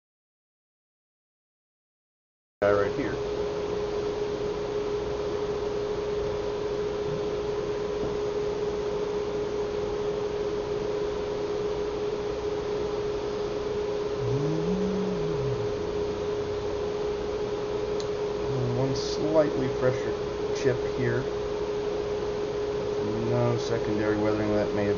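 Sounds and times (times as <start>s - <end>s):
electrical hum with tone: 2.6s - 24.9s
low sound rising and falling: 14.2s - 16.8s.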